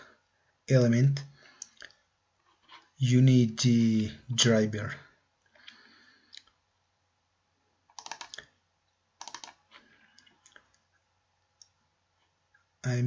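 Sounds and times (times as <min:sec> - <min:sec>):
faint computer clicking: 0:07.9 - 0:10.9.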